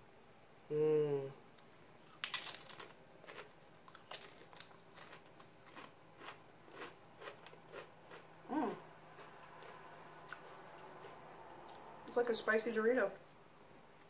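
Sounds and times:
tortilla chip crunching: 0:02.1 - 0:08.2.

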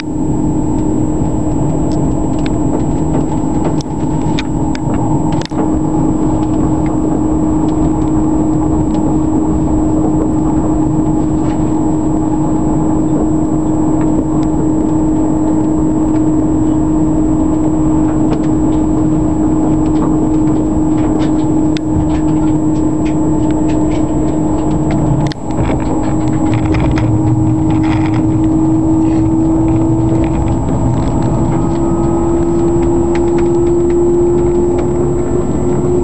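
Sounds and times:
constant train whine: 0:00.0 - 0:36.0
train wheels rumbling on rails: 0:00.0 - 0:36.0.

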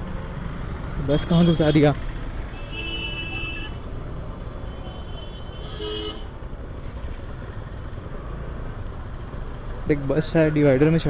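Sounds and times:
low rumble of city traffic: 0:00.0 - 0:11.0
vehicle horn toot: 0:05.0 - 0:06.3.

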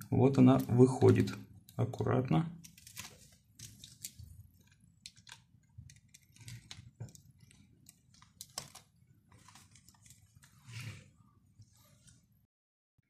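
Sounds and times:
small clicks and rustling: 0:02.6 - 0:10.7.

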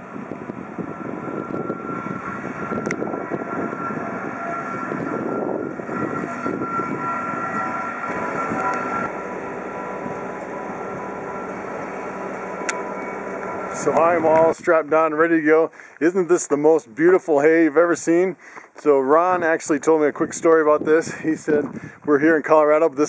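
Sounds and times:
diesel loader engine whining: 0:00.0 - 0:16.1.

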